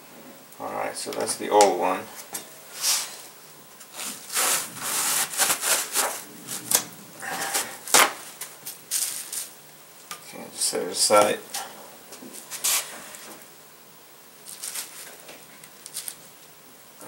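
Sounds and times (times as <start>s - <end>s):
paper towels crinkling: 3.8s - 9.6s, 14.4s - 16.4s.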